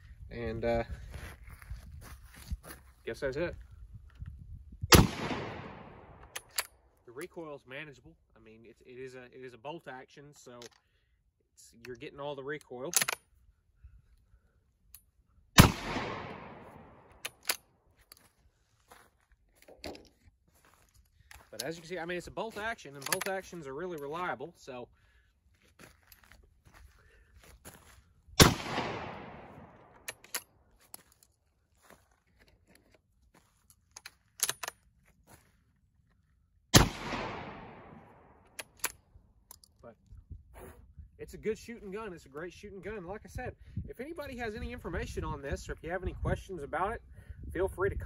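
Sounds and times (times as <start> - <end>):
shotgun shot: 4.9 - 6.2, 15.6 - 17.1, 28.4 - 29.8, 36.8 - 38.4
metallic clicks of gun bolt: 6.2 - 6.8, 11.8 - 13.3, 17.2 - 18.2, 22.9 - 24.2, 30.0 - 31.1, 33.7 - 34.8, 38.5 - 39.8.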